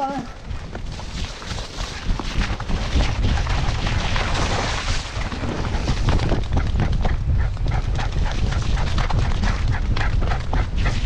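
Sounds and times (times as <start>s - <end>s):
camera harness rumbling and knocking: 0.4s - 11.0s
paw strikes: 5.6s - 11.0s.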